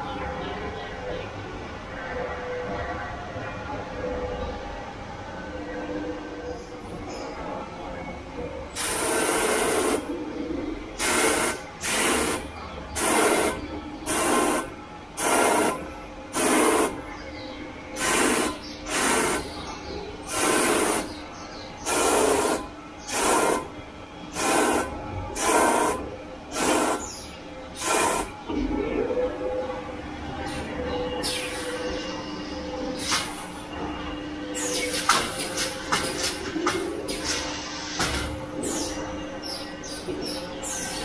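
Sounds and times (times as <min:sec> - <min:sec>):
machine hum: 0:00.0 - 0:41.0
short bursts of machine noise: 0:08.8 - 0:10.1, 0:11.0 - 0:17.0, 0:18.0 - 0:19.6, 0:20.2 - 0:21.2, 0:21.8 - 0:28.4.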